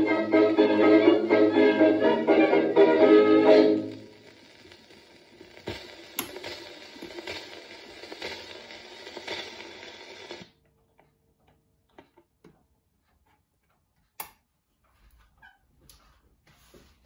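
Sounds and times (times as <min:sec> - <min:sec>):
record surface hiss: 0:00.0 - 0:12.3.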